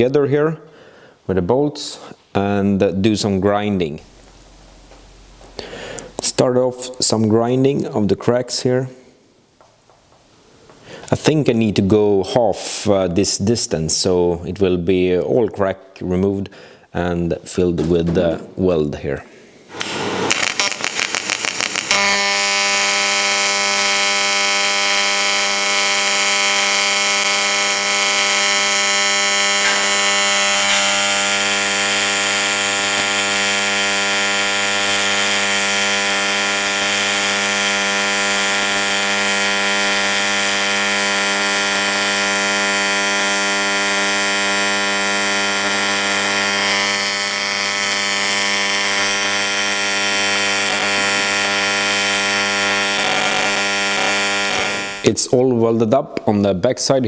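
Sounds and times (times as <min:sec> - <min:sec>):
welding arc buzzing with hiss: 0:04.0 - 0:07.1, 0:19.7 - 0:55.2
welding arc crackle: 0:04.0 - 0:07.1, 0:19.7 - 0:55.2.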